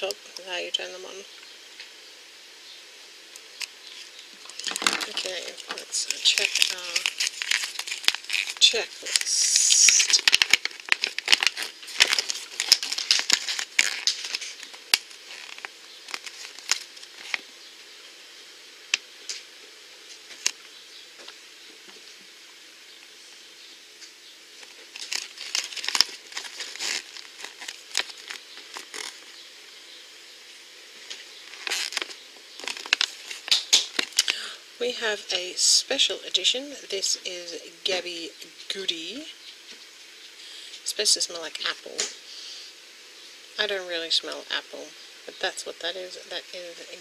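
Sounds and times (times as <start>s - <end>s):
paper crinkling and rustling: 3.9s - 17.5s, 24.6s - 29.4s, 31.0s - 34.4s.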